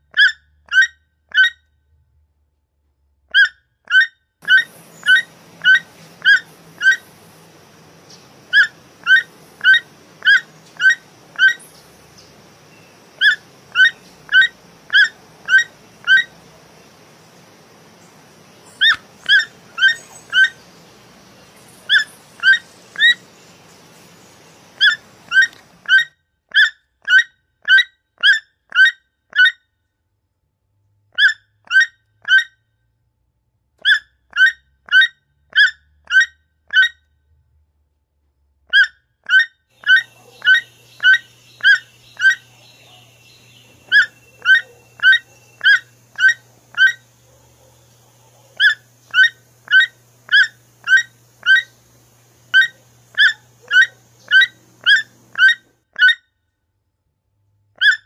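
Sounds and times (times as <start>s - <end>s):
toucan croaking calls: 0.1s - 1.7s, 3.3s - 29.6s, 31.2s - 32.6s, 33.8s - 37.0s, 38.7s - 56.2s, 57.8s - 58.0s
faint background hiss: 4.4s - 25.9s, 39.7s - 55.8s.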